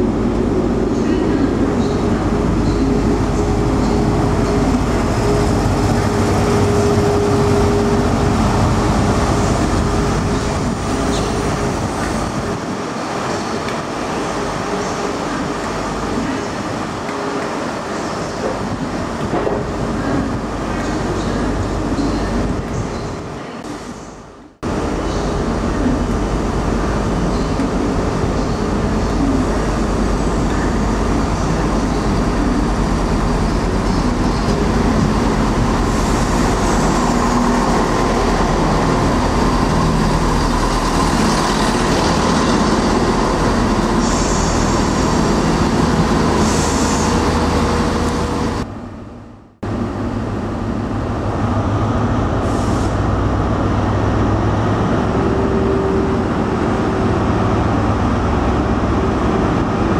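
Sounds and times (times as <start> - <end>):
diesel train engine drone: 0.0 - 59.9.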